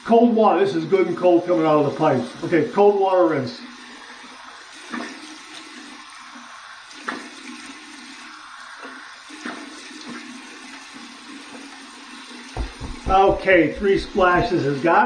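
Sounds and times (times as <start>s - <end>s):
water running from tap into sink: 0.5s - 15.0s
water splashing on face: 12.6s - 14.8s.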